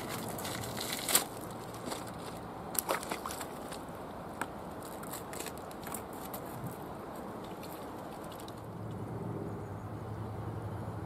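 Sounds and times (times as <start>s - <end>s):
footsteps crunching on rocks: 0.0s - 6.8s.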